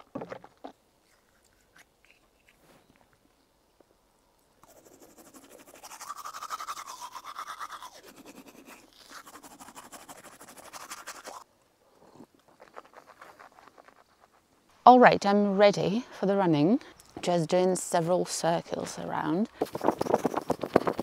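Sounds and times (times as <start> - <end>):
toothbrush scrubbing teeth: 4.6 - 11.4.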